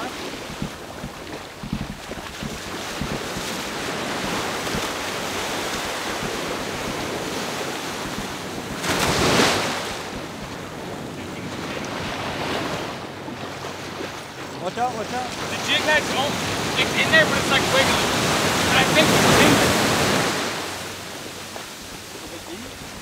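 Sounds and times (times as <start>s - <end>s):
ocean surf on a beach: 0.0s - 23.0s
wind buffeting microphone: 0.0s - 23.0s.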